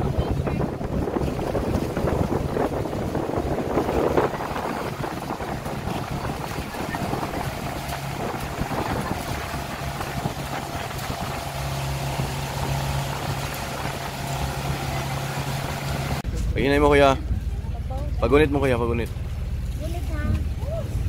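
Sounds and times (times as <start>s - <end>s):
wind on microphone: 0.0s - 16.6s
boat engine humming: 0.0s - 21.0s
water rushing past hull: 0.0s - 21.0s.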